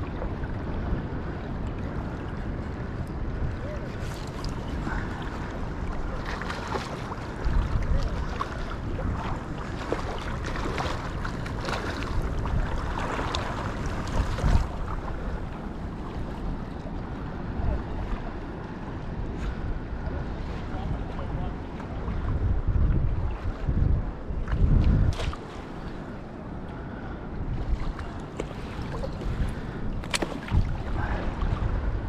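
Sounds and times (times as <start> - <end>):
water lapping and splashing: 0.0 - 32.0
wind buffeting microphone: 0.0 - 32.0.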